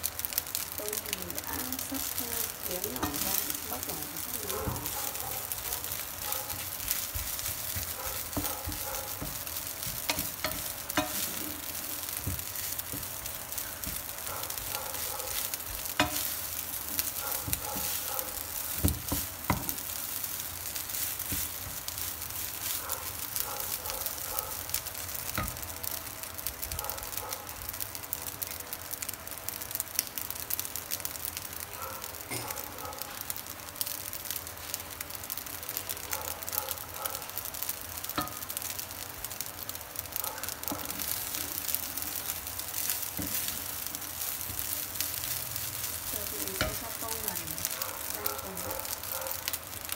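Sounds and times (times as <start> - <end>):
rice sizzling in a frying pan: 0.0 - 49.9
spatula scraping and stirring: 2.1 - 25.6, 40.5 - 48.2.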